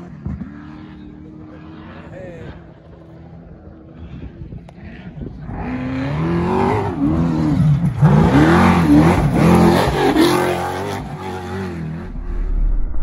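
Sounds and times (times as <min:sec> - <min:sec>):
truck engine revving: 0:05.6 - 0:13.0.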